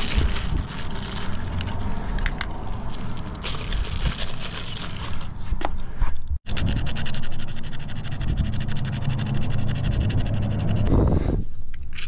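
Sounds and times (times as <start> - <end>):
plastic bags crinkling: 0.0 - 1.9, 2.6 - 5.4
hands rummaging in plastic case: 0.0 - 6.2.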